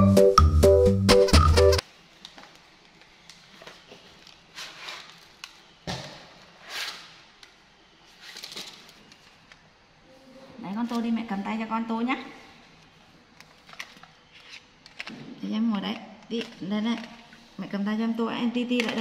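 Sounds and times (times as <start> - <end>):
electronic keyboard music: 0.0 - 1.8.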